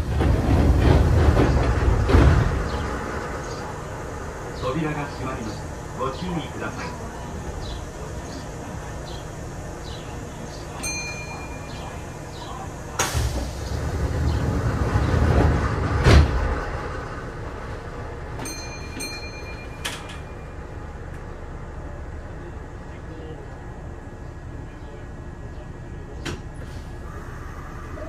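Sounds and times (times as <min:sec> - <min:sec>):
train doors closing: 0:00.0 - 0:22.1, 0:25.6 - 0:28.0
heavy door thump: 0:13.0 - 0:16.8.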